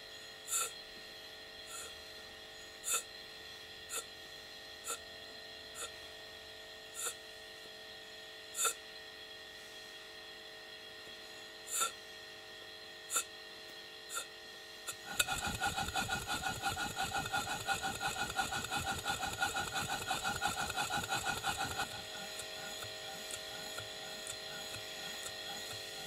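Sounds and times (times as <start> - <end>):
model steam engine exhaust beats: 0.0 - 0.8, 1.6 - 2.1, 2.8 - 3.1, 3.9 - 4.2, 6.9 - 7.2, 8.5 - 8.8, 11.7 - 12.0, 13.1 - 13.3, 14.1 - 26.0.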